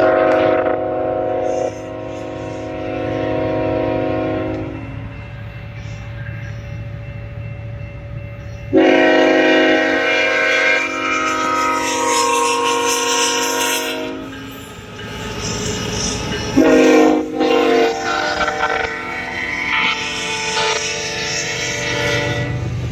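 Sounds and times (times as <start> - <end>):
locomotive air horn chord: 0.0 - 4.8, 8.7 - 14.3, 16.6 - 22.7.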